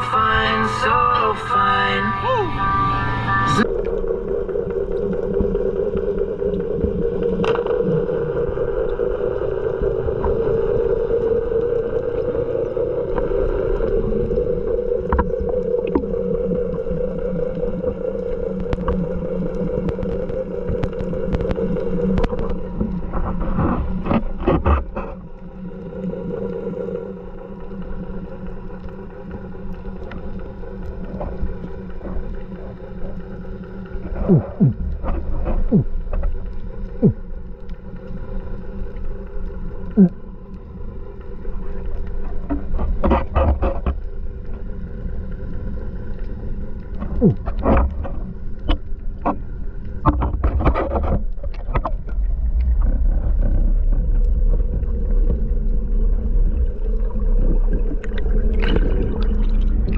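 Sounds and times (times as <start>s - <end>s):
underwater boat motor drone: 0.0s - 59.9s
sharp underwater clicks: 18.6s - 25.1s.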